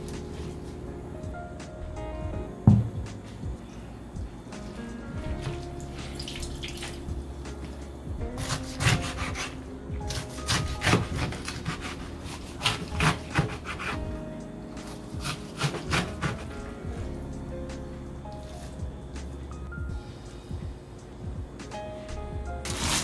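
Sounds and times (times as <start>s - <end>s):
faint background music: 0.0s - 23.0s
knife chopping on cutting board: 8.4s - 14.0s, 15.1s - 16.6s, 22.6s - 23.0s.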